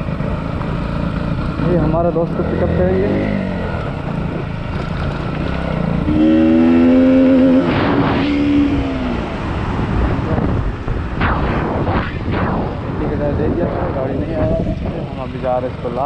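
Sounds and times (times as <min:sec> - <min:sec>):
motorcycle engine running: 0:00.0 - 0:07.7, 0:12.9 - 0:16.0
wind noise on microphone: 0:06.0 - 0:15.4
loud steady pitched tone: 0:06.1 - 0:09.2.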